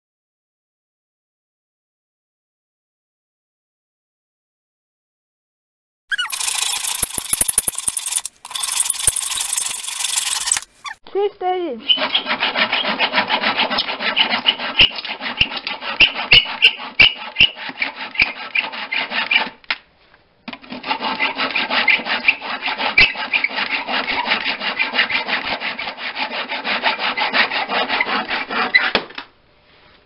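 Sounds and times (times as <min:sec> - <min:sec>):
handsaw cutting wood: 0:06.1 - 0:11.0, 0:11.9 - 0:19.6, 0:20.6 - 0:29.0.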